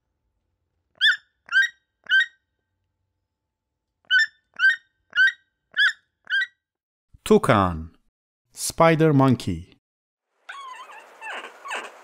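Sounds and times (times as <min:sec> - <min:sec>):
toucan calling: 0:01.0 - 0:02.5, 0:04.1 - 0:06.6, 0:10.5 - 0:12.0.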